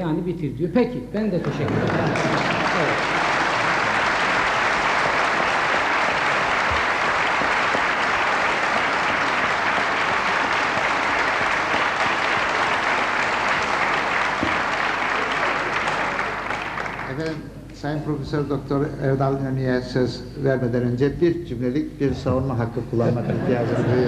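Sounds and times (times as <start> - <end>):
audience applauding: 1.4 - 17.4.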